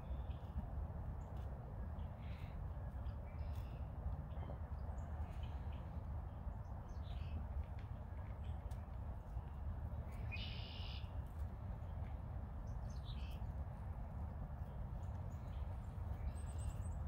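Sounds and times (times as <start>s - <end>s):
songbird calls: 10.1s - 11.1s.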